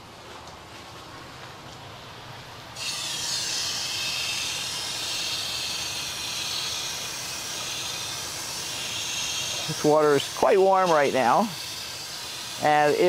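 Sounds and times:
water spraying onto soil: 2.8 - 13.0.

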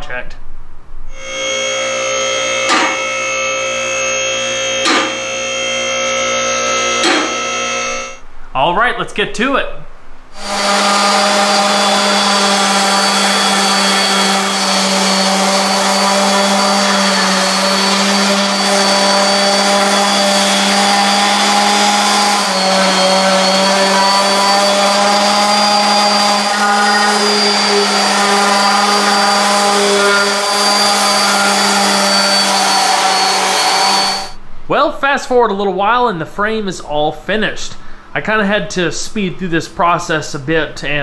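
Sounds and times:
orbital sander on metal: 1.1 - 8.2, 10.3 - 34.4.

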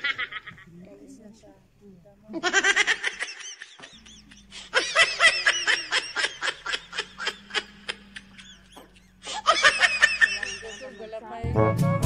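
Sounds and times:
person laughing: 2.4 - 11.1.

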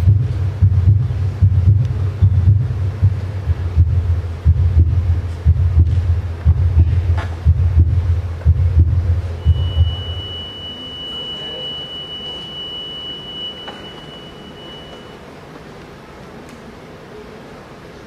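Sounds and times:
heartbeat thumps: 0.0 - 10.6
thin high tone: 9.4 - 15.3.

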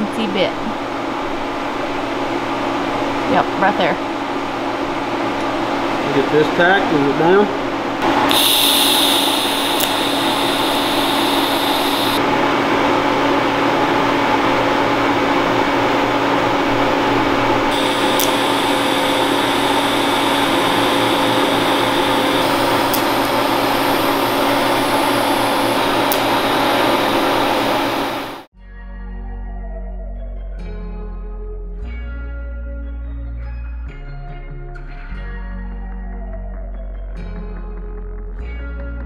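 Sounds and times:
welding arc buzzing hiss: 8.0 - 12.2, 17.0 - 28.5.

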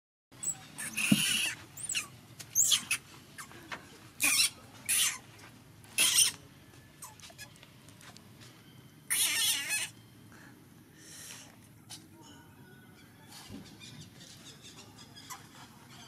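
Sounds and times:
young monkey screaming: 0.4 - 3.5, 4.2 - 5.2, 6.0 - 6.4, 9.1 - 10.0.

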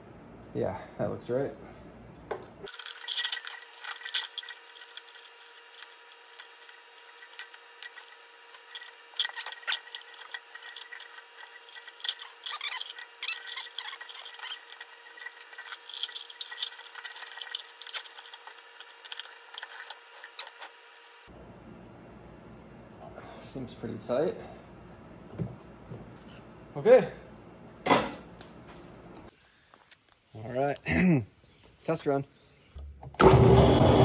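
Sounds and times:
belt clicking and rubbing on pulley: 2.7 - 21.2.

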